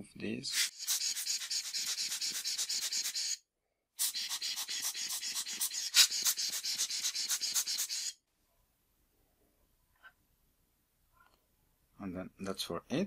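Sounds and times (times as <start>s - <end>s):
rubber bulb air blower puffing: 4.0s - 8.2s.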